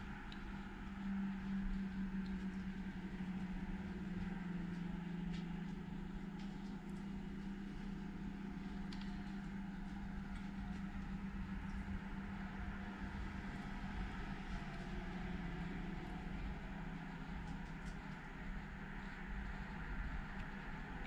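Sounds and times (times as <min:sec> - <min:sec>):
faint ticks: 0:00.0 - 0:11.9
low machine hum: 0:00.0 - 0:21.0.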